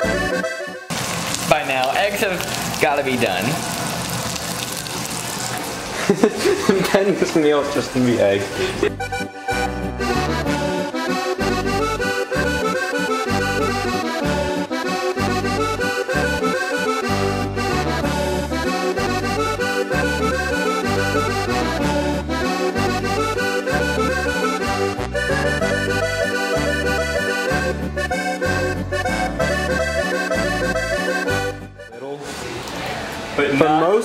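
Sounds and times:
accordion playing a folk dance tune: 0.0 - 0.9, 6.0 - 32.2.

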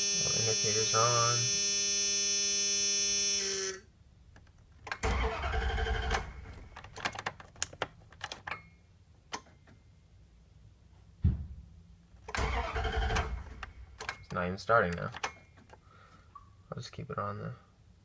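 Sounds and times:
steady electrical buzz: 0.0 - 3.8
starter cranking engine: 5.0 - 6.9, 12.3 - 13.6
sharp thump: 11.2 - 11.7.

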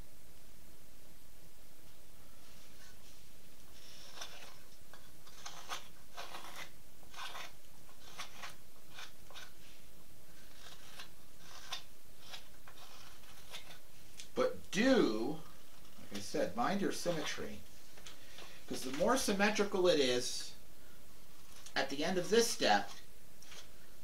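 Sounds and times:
knife scraping wood: 2.5 - 14.0, 15.4 - 19.3, 21.4 - 23.8.

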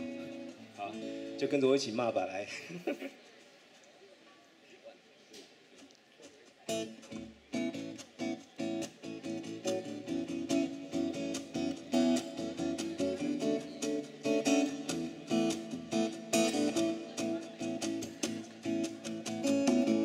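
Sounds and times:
acoustic guitars strummed: 0.0 - 1.6, 6.7 - 20.0.

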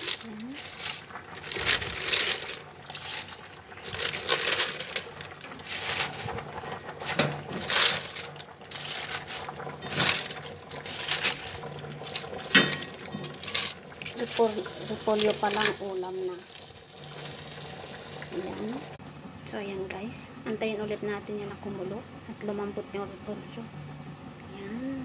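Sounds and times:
cabbage leaves rustling and crunching: 0.0 - 17.6.

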